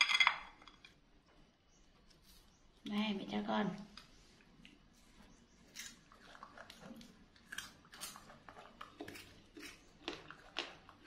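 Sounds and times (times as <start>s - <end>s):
monkey chewing crisp crunches: 5.7s - 11.0s.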